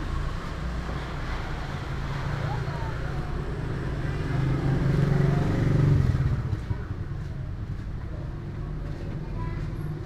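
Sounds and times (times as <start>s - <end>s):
vehicle engine passing by: 0.0s - 10.0s.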